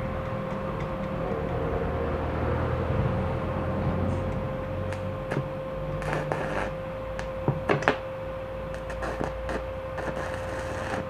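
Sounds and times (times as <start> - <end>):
welder high hum: 0.0 - 11.0
welding arc crackling: 4.1 - 11.0.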